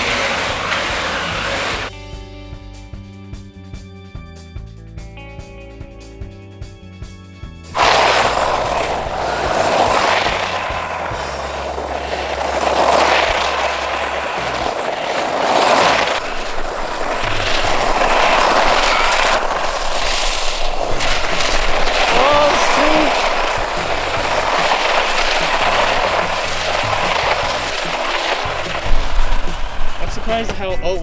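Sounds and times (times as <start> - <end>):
rc truck motors rushing: 0.0 - 1.9, 7.8 - 30.2.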